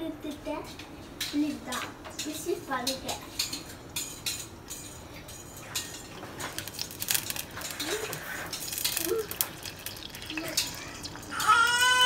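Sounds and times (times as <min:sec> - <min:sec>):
high sizzle: 0:00.0 - 0:12.0
oil crackling and popping: 0:05.8 - 0:12.0.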